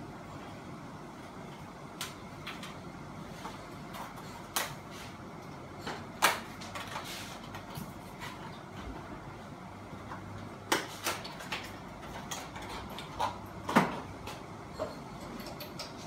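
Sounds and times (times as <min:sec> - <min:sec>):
clicks and knocks of hard objects: 0:10.1 - 0:16.0.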